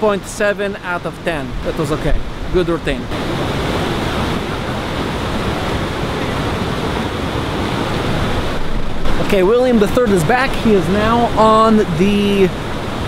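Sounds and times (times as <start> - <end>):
river rushing over rocks: 0.0 - 13.0.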